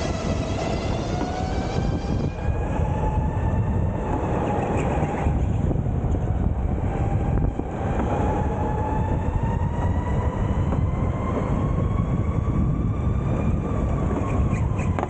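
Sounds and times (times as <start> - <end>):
electric motor whine: 0.0 - 4.2
wind on microphone: 0.0 - 15.0.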